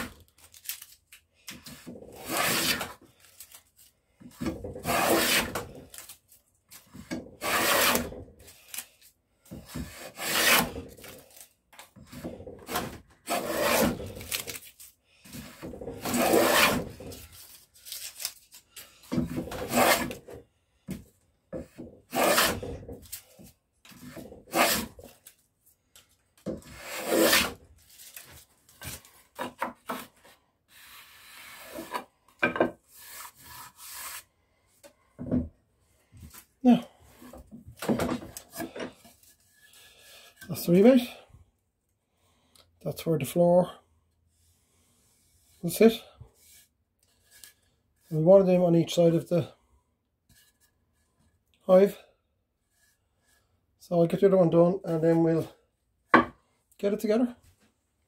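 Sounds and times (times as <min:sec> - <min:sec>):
hand plane rasping through wood: 0:01.7 - 0:03.0, 0:04.7 - 0:05.8, 0:07.4 - 0:08.2, 0:09.6 - 0:10.9, 0:12.1 - 0:14.3, 0:15.3 - 0:17.2, 0:19.4 - 0:20.4, 0:22.1 - 0:22.9, 0:23.9 - 0:25.1, 0:26.6 - 0:27.6.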